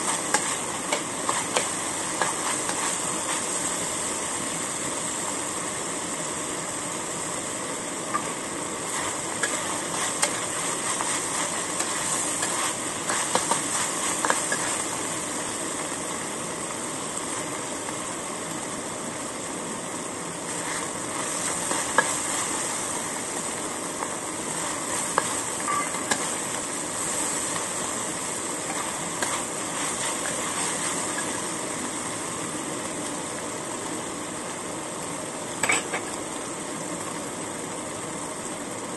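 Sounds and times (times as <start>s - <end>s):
food sizzling in a wok: 0.0s - 38.9s
metal spatula scraping a wok: 8.9s - 14.8s.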